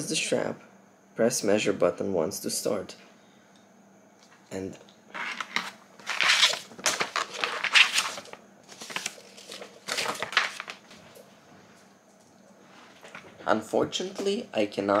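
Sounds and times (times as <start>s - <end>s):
paper leaflet rustling: 5.1s - 11.1s.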